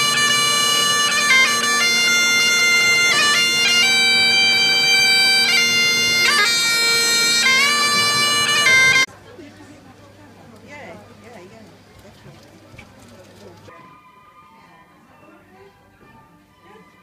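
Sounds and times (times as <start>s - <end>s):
bagpipe chanter melody: 0.0s - 9.1s
bagpipe drones humming: 0.0s - 9.1s.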